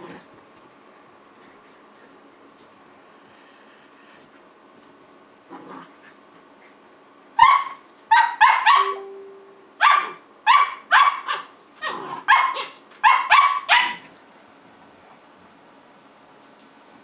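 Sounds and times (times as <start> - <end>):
puppy yapping play barks: 7.4 - 9.1, 9.8 - 14.1.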